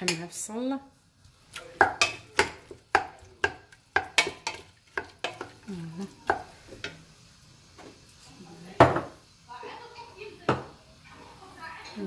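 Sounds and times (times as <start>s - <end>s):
meat and onion sizzling: 0.0s - 12.0s
spoon knocking against pot: 1.8s - 5.6s.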